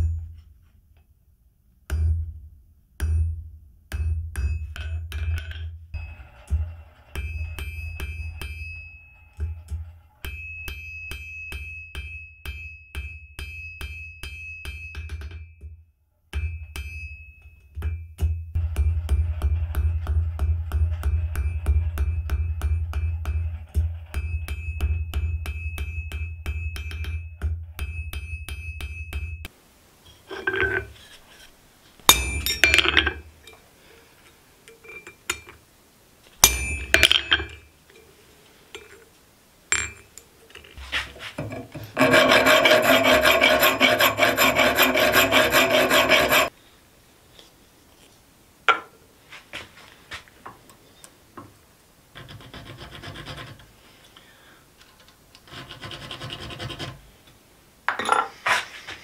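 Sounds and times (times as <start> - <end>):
knocks and scrapes of steel piece: 4.4 - 11.7, 17.8 - 29.3, 30.1 - 33.6, 34.7 - 35.6, 36.4 - 38.1, 39.7 - 46.5, 57.9 - 59.0
rasp of steel being worked: 41.4 - 46.5, 52.2 - 53.7, 55.4 - 57.0.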